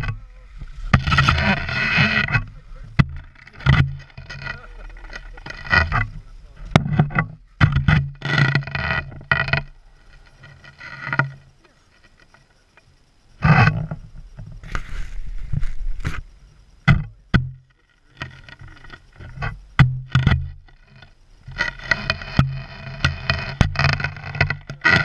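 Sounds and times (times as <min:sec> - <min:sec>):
skis scraping over snow: 0:14.6 - 0:16.3.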